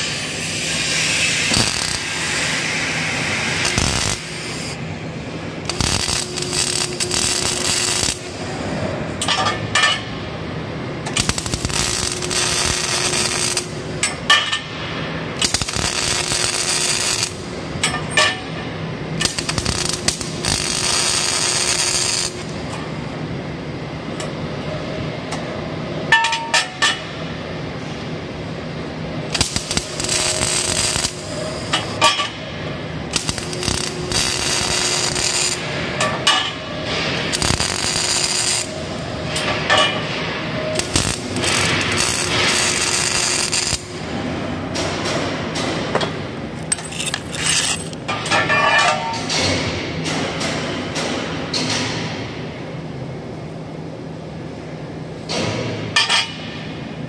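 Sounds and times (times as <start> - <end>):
welding arc crackling: 0.0 - 10.3, 11.0 - 22.7, 29.2 - 44.2.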